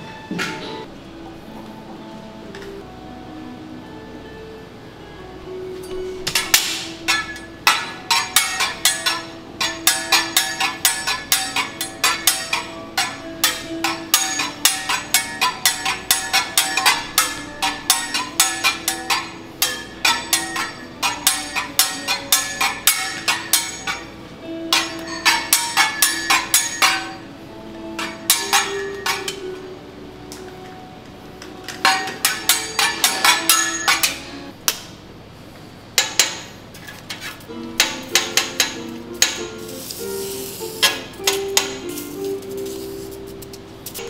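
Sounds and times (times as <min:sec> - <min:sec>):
background music: 0:00.0 - 0:34.6, 0:37.5 - 0:44.0
metal spatula tapping on griddle: 0:06.3 - 0:24.1.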